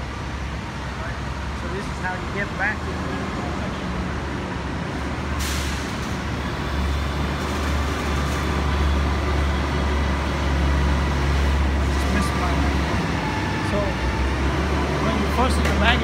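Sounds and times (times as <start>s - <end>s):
bus engine droning: 0.0s - 16.0s
air brakes hissing: 5.4s - 6.2s.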